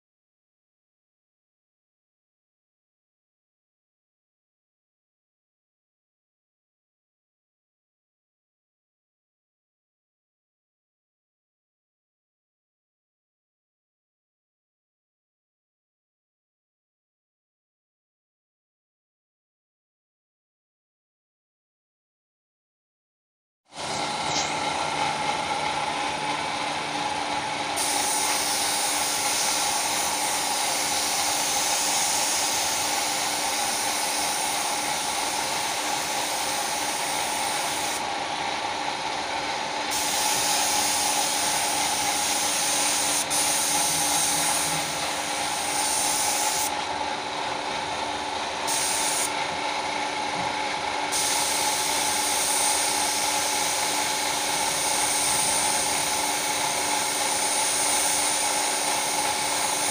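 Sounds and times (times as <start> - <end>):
steady humming tones: 34.8 - 50.6.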